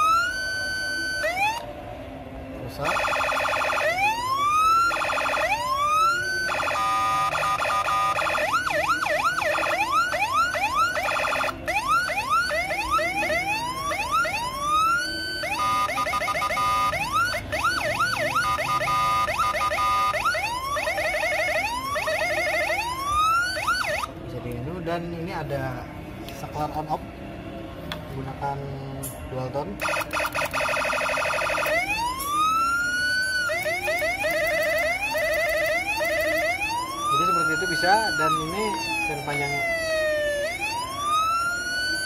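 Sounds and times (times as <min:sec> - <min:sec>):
electronic siren wails and yelps: 0:00.0 - 0:01.8, 0:02.7 - 0:24.1, 0:29.8 - 0:42.0.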